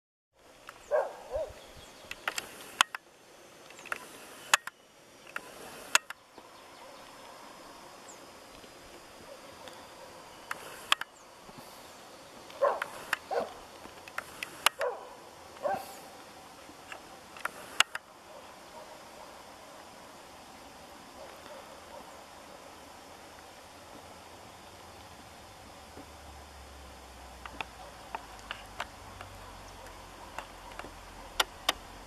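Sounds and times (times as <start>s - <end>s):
outdoor rural background: 0.3s - 32.0s
sharp clicks: 2.0s - 3.0s, 3.6s - 6.2s, 10.5s - 11.2s, 12.4s - 15.7s, 16.8s - 18.1s, 27.4s - 32.0s.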